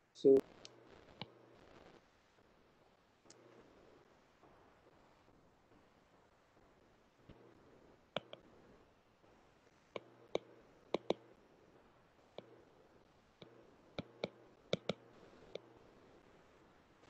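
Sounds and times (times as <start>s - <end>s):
stylus tapping on glass screen: 10.0s - 11.2s, 13.4s - 15.0s.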